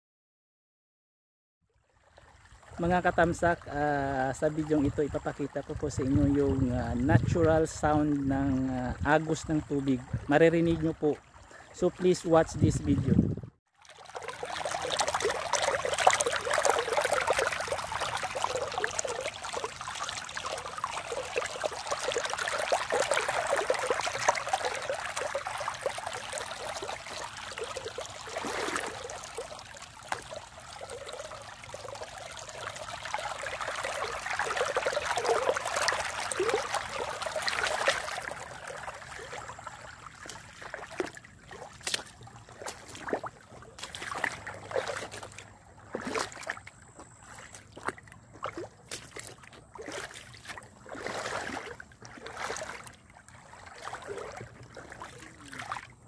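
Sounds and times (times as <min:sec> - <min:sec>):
small water splashes: 0:01.7 - 0:56.0
river babbling over stones: 0:13.8 - 0:45.4.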